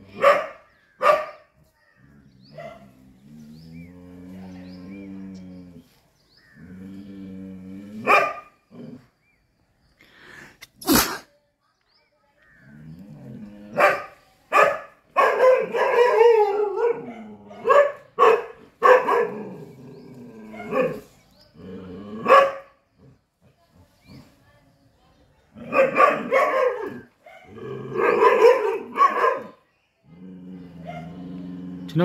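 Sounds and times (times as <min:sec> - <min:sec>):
dog barking: 0:00.1 - 0:01.5, 0:02.5 - 0:03.0, 0:08.0 - 0:08.5, 0:13.7 - 0:19.4, 0:20.5 - 0:21.1, 0:22.2 - 0:22.8, 0:25.6 - 0:29.6, 0:30.8 - 0:31.2.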